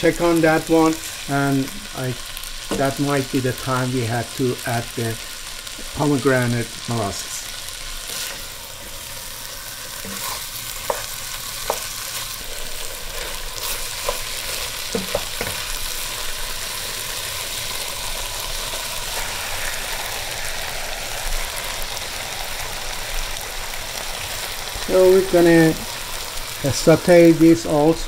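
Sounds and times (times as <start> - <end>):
chicken sizzling in a pot: 0.0 - 28.0
wooden spoon knocking pot: 14.9 - 15.6.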